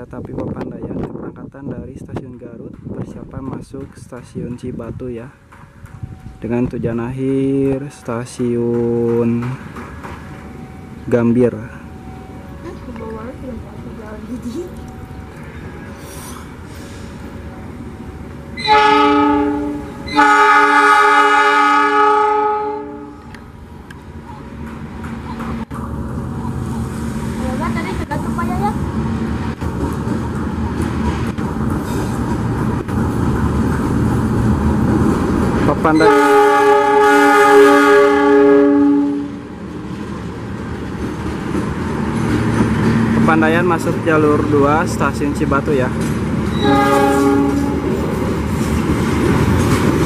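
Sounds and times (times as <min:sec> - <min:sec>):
train rolling past: 0:00.0 - 0:50.0
locomotive air horn: 0:18.6 - 0:23.2, 0:36.0 - 0:39.4, 0:46.6 - 0:47.9.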